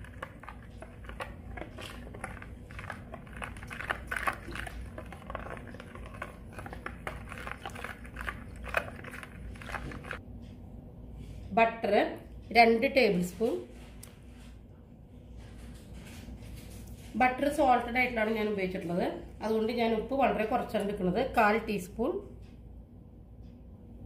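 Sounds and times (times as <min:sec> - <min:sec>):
metal spoon scraping plastic bowl: 0:00.0 - 0:10.2.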